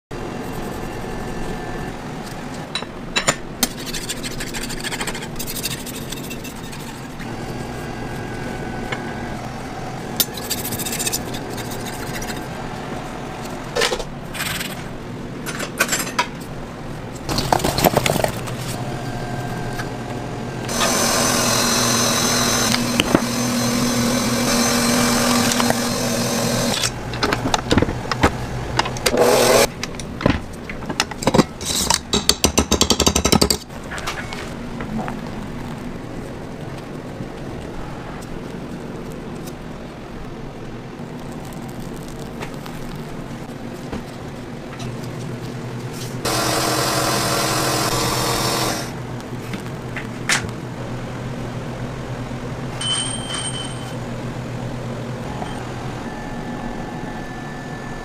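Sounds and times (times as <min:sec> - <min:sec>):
knife and metal ring scraping: 0:03.8 - 0:07.8, 0:10.2 - 0:12.5
stand mixer motor running: 0:20.7 - 0:26.8, 0:29.1 - 0:29.7, 0:46.3 - 0:48.9
clinks: 0:52.8 - 0:54.0.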